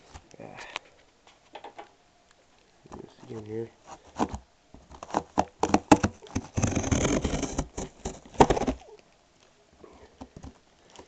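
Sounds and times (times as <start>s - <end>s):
cardboard scraping and sliding: 3.0s - 8.8s
knocks and taps on cardboard box: 4.1s - 8.8s.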